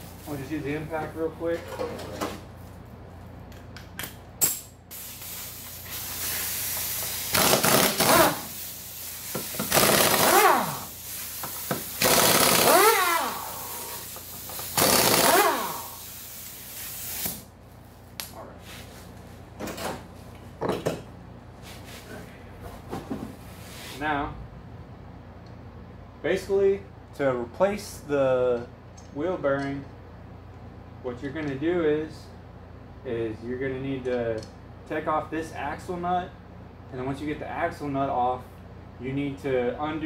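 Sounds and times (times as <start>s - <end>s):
air impact wrench hammering: 4.4s - 17.4s.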